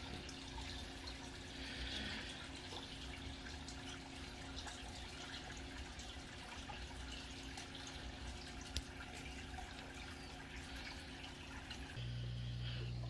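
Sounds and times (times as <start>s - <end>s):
water trickling and dripping: 0.0s - 12.0s
low steady hum: 0.0s - 13.0s.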